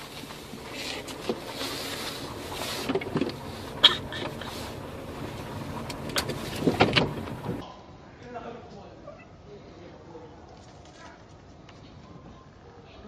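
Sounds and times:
car rolling slowly: 0.0s - 7.6s.

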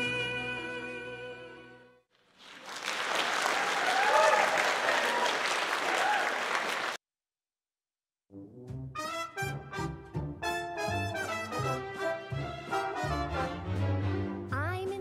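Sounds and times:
audience applauding and cheering: 2.2s - 7.0s.

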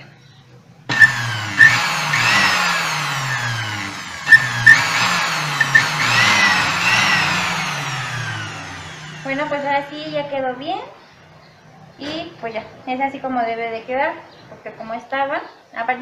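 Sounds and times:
blender motor whining: 0.9s - 10.3s
sharp clicks: 4.3s - 7.0s.

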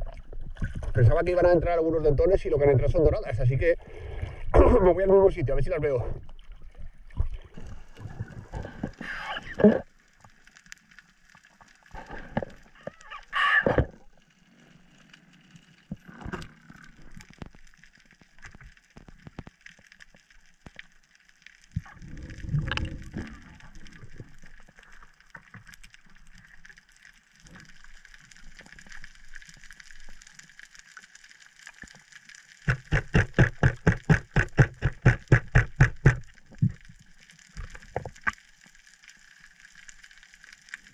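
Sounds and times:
water splashing and rushing: 31.7s - 38.6s
underwater thump: 32.7s - 36.8s.

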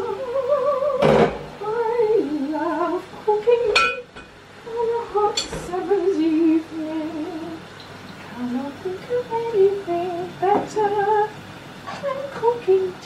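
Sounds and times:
kitchenware clinking: 3.7s - 4.3s.

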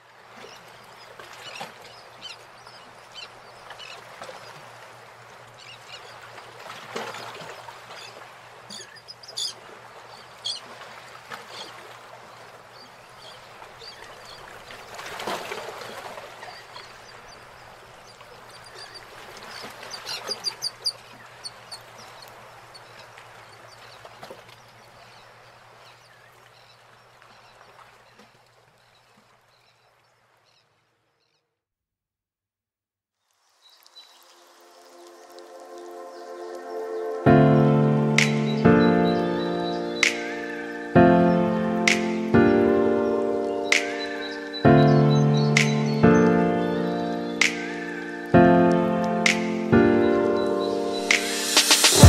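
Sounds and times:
birds chirping: 8.0s - 10.6s, 33.5s - 52.0s
steady rushing noise: 50.9s - 52.0s.

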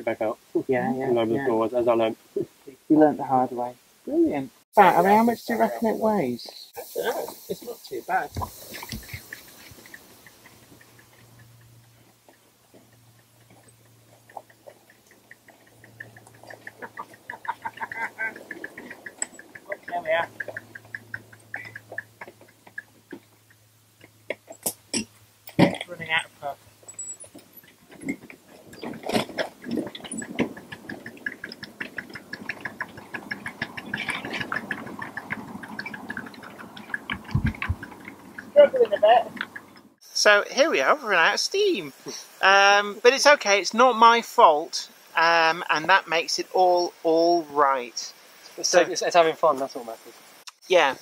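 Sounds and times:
miniature steam train running: 4.8s - 11.2s, 16.3s - 20.7s
steam locomotive rhythmic ticking: 4.9s - 24.1s, 28.6s - 40.0s
regular wheel clicks: 7.5s - 40.0s.

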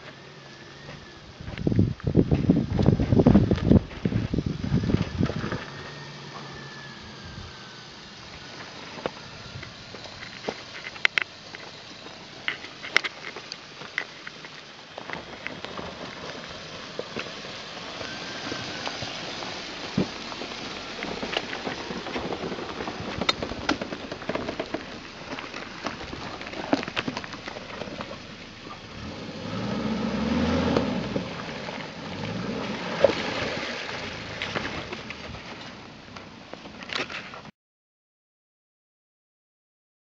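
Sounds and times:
twigs snapping under tyres: 8.9s - 17.4s, 18.8s - 37.4s
engine revving: 17.5s - 35.3s.

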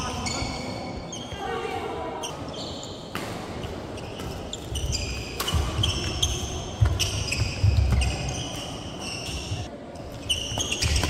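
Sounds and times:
shoes squeaking on wooden floor: 4.0s - 11.0s
racket striking shuttlecock: 5.4s - 6.0s.

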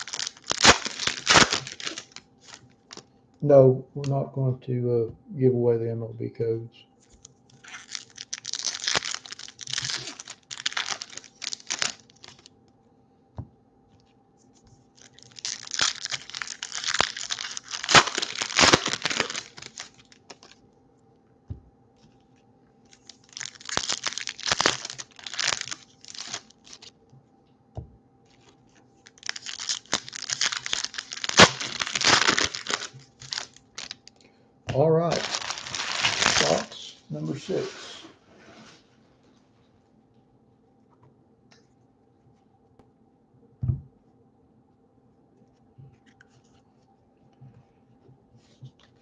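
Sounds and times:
foil wrappers tearing and crinkling: 0.0s - 3.0s, 7.5s - 12.5s, 15.0s - 20.6s, 22.9s - 26.9s, 28.3s - 34.2s, 35.1s - 38.8s.

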